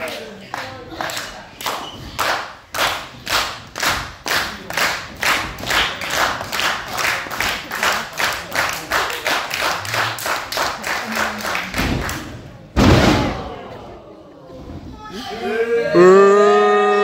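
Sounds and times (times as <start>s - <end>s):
spectators clapping in unison: 0.0s - 12.4s.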